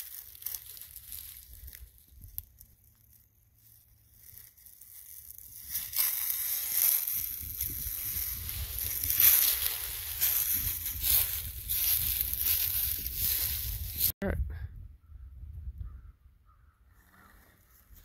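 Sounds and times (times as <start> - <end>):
footsteps crunching dry leaves: 0.0 - 14.1.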